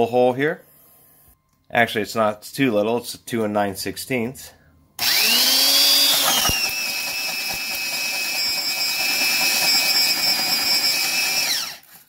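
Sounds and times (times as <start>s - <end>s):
drill motor whining: 5.0s - 12.0s.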